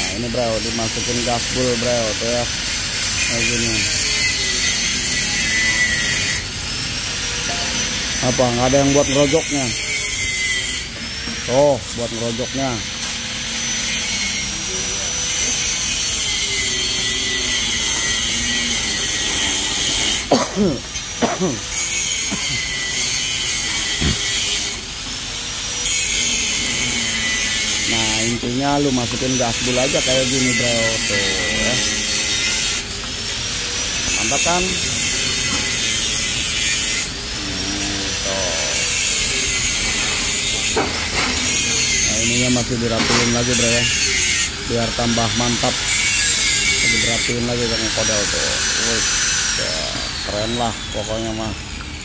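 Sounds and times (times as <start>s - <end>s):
power tool hiss and whine: 0.0s - 52.0s
faint voice: 37.4s - 38.7s.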